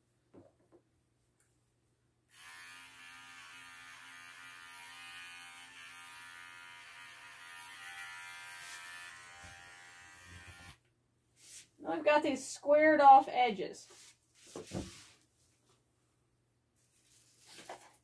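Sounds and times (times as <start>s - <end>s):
pet clipper motor hum: 2.4s - 10.8s.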